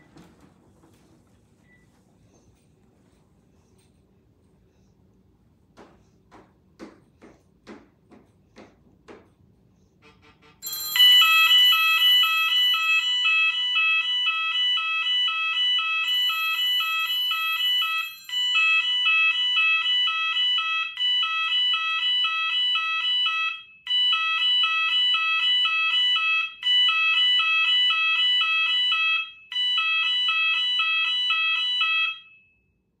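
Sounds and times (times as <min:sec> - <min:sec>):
two-tone electronic warble alarm: 0:10.6 - 0:32.6.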